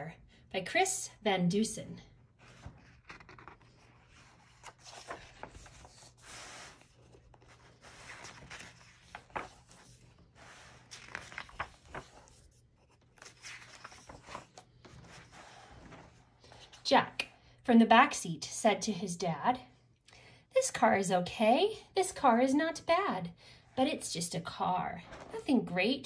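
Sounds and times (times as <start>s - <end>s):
book cover crinkling: 2.4s - 16.0s
paper pages rustling: 2.4s - 16.8s.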